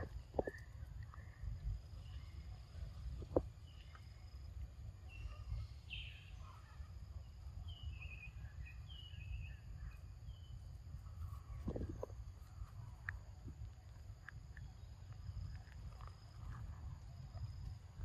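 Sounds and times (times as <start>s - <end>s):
bird chirps: 5.1s - 6.8s, 7.6s - 10.6s.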